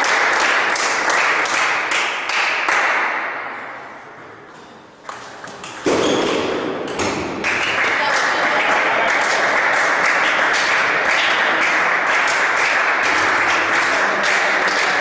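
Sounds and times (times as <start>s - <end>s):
loud applause: 0.0s - 3.3s, 7.4s - 15.0s
people clapping: 0.0s - 3.8s, 6.9s - 15.0s.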